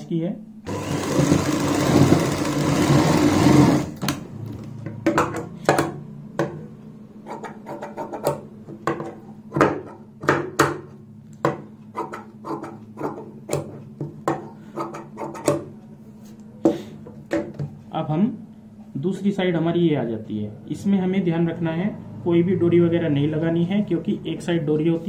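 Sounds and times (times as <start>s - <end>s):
sewing machine running: 0.7s - 4.1s.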